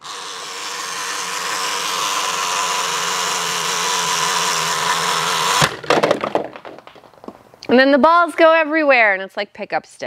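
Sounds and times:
plastic toy whirring: 0.0 - 5.8
balls rattling inside: 5.6 - 7.6.

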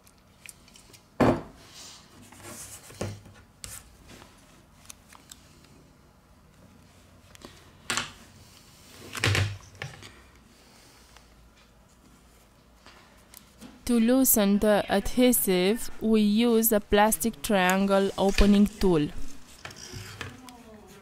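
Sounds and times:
tool scraping: 18.0 - 20.4.

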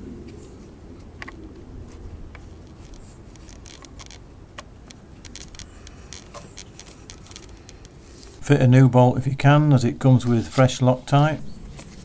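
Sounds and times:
gloved hand clicking and rustling: 0.3 - 8.4.

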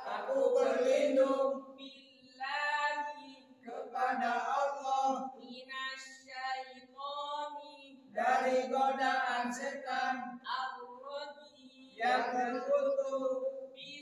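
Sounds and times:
men chanting in unison: 0.0 - 3.0, 3.6 - 5.4, 8.1 - 10.5, 12.0 - 13.5.

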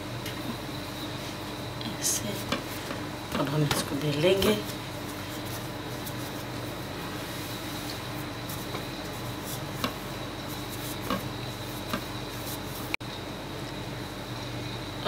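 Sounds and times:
steady hum: 0.0 - 15.0
rolling pin rubbing on dough: 2.0 - 13.0.

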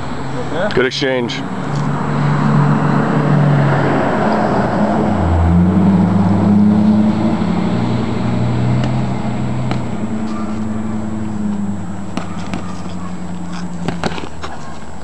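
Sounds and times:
motor engine running: 8.8 - 14.5.

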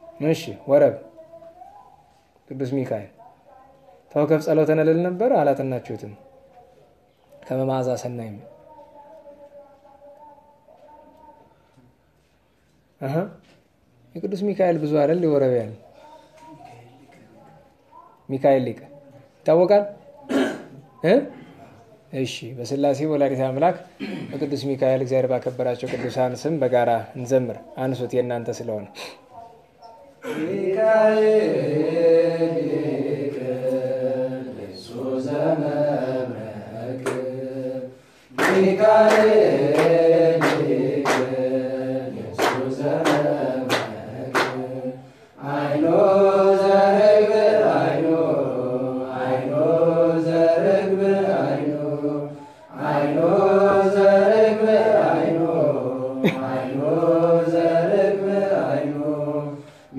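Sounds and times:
group chanting a hymn: 29.9 - 59.9.

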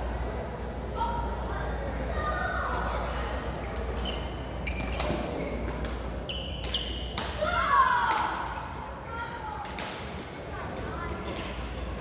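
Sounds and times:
shoes squeaking on floor: 3.6 - 7.1
child shouting: 7.4 - 8.5.

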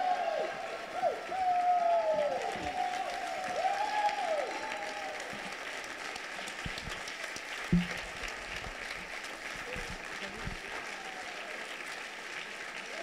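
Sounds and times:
audience applauding: 0.0 - 13.0
brief thump: 7.7 - 8.2.

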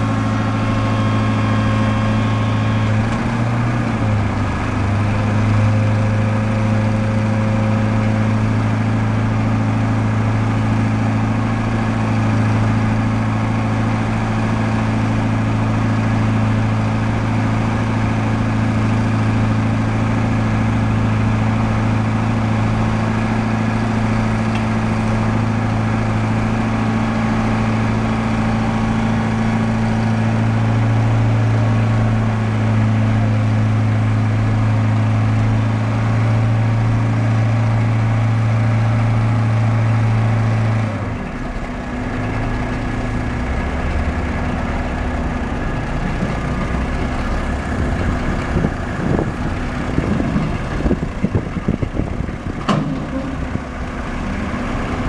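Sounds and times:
diesel engine running steadily: 0.0 - 55.0.

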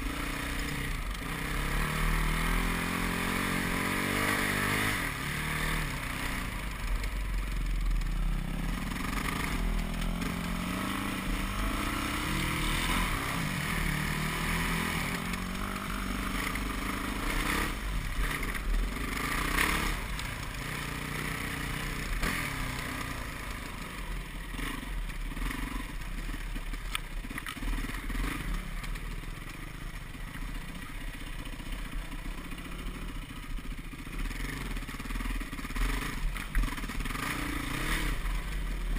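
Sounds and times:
dirt bike engine revving: 0.0 - 26.6, 27.6 - 29.2, 33.8 - 38.9.

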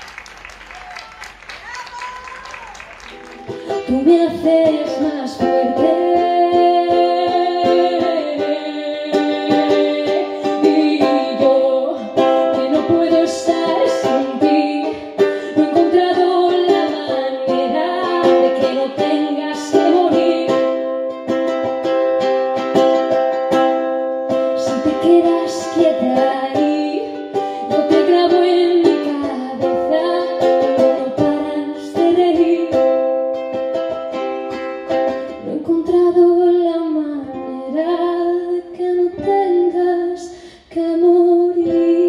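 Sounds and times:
ukulele strumming: 2.6 - 42.0
woman singing into a microphone: 3.5 - 20.9, 24.6 - 33.1, 35.3 - 42.0.

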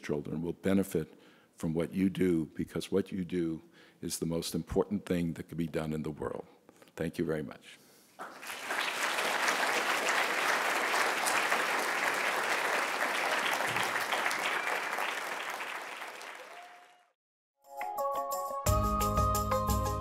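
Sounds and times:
audience applauding: 8.2 - 17.1.

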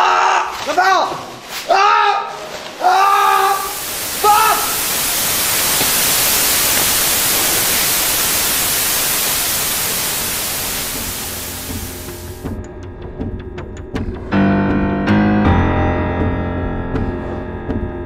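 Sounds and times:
loud static hiss: 2.4 - 12.6.

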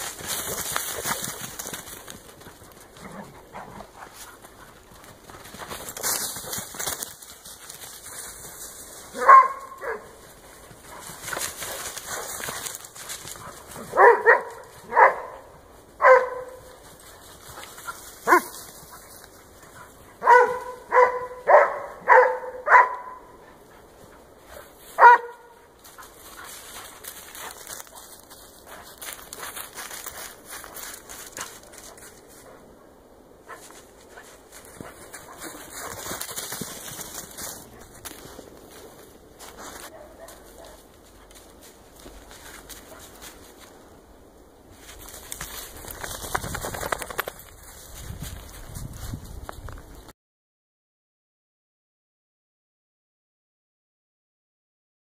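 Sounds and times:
crunching through snowy brush: 0.0 - 14.9, 25.8 - 32.4, 33.7 - 43.8, 44.7 - 50.0
dog barking: 9.1 - 10.2, 13.8 - 16.8, 18.2 - 18.6, 20.2 - 23.4, 25.0 - 25.6, 39.9 - 40.8.

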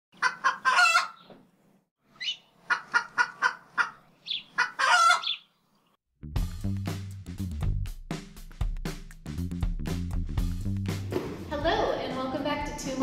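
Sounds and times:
chicken clucking: 0.2 - 1.3, 2.2 - 5.5.

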